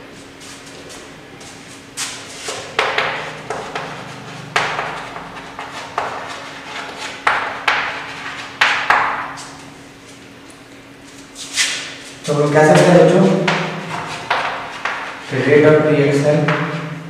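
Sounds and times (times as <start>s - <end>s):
chalk scraping on blackboard: 3.4s - 8.6s, 13.9s - 15.3s.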